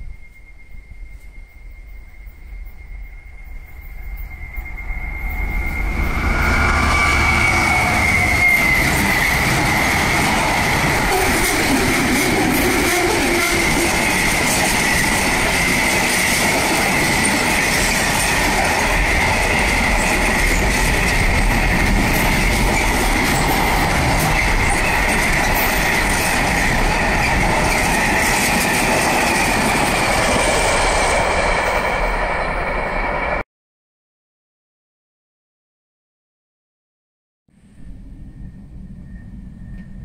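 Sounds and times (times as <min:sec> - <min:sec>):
high whine: 0:00.0 - 0:33.4, 0:37.6 - 0:40.0
train wheels rushing on rail: 0:02.7 - 0:33.4.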